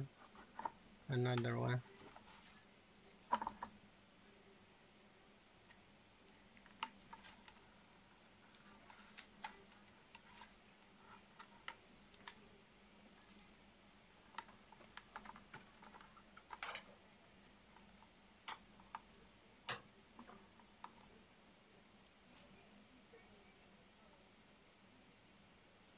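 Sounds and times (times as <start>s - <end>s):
faint steady hum: 0.0s - 25.9s
rustling scrape: 1.8s - 3.2s
plastic parts clicking and tapping: 3.2s - 3.7s, 14.3s - 16.9s.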